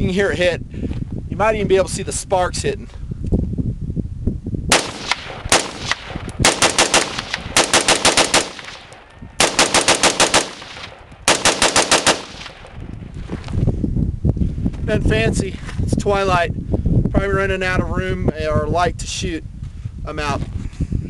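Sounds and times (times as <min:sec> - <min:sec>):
rifle gunshots: 0:04.7 - 0:12.8.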